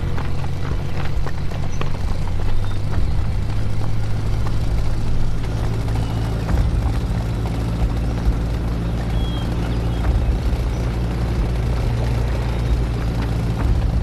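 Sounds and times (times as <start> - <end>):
vehicle engines droning: 0.0 - 14.0.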